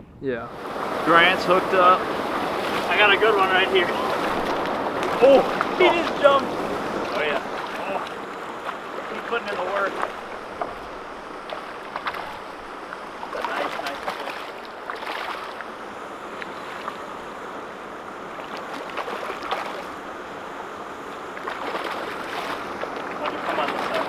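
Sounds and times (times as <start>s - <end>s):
river water rushing: 0.5s - 24.0s
fish splashing at surface: 11.4s - 12.6s, 13.2s - 15.6s, 18.4s - 20.0s, 21.3s - 24.0s.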